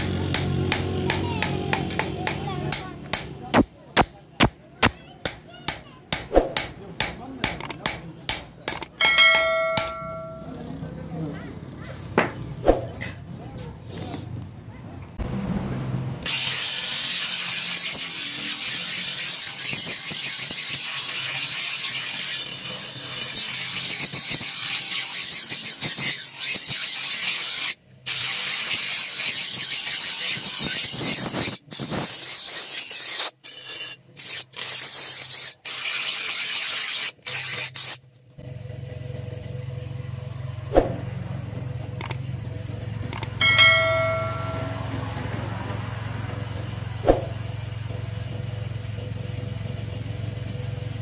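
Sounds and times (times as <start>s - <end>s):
grinder wheel grinding steel: 7.2s - 11.2s, 16.2s - 51.0s
low hum: 38.5s - 49.0s.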